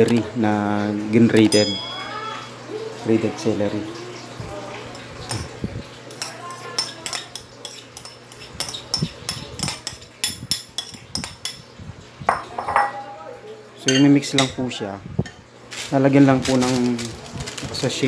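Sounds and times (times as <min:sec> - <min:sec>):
plate and glass bowl clinking: 0:01.5 - 0:02.3, 0:12.3 - 0:13.0.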